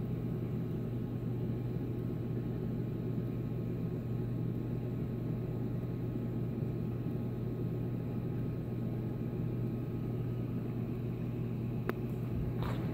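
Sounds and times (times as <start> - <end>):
aquarium pump hum: 0.0 - 12.9
water circulating: 11.7 - 12.9.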